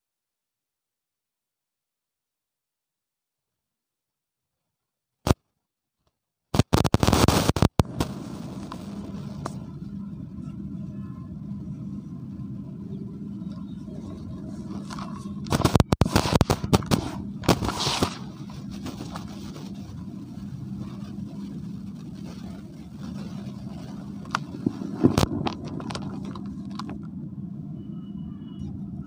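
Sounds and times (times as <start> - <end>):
microphone crackling: 6.6 - 9.8, 13.5 - 27.0
steady hiss: 6.6 - 27.0
low hum: 6.8 - 29.0.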